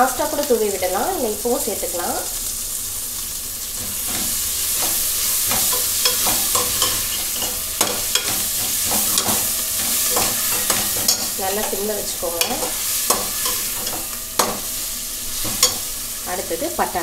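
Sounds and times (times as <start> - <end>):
onions sizzling in oil: 0.0 - 17.0
metal spatula scraping pot: 3.9 - 14.7.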